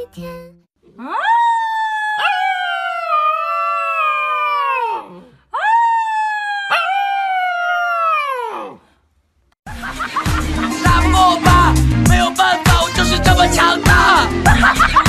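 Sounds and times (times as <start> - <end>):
puppy howling: 1.0 - 8.8.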